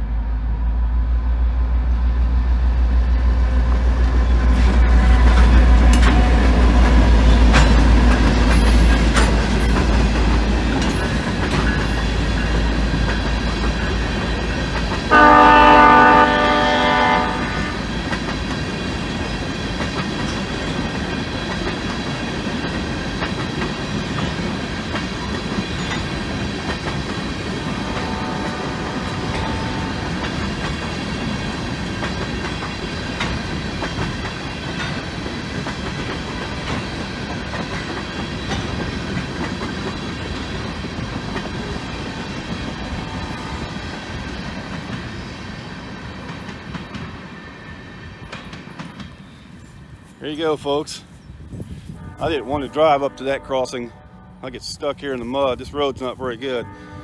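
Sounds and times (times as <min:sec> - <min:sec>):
freight train rumble and wheel clatter: 0:00.0 - 0:57.0
train horn: 0:04.8 - 0:06.7, 0:15.1 - 0:18.0, 0:27.6 - 0:30.4, 0:42.9 - 0:43.8, 0:51.8 - 0:54.6, 0:56.5 - 0:57.0.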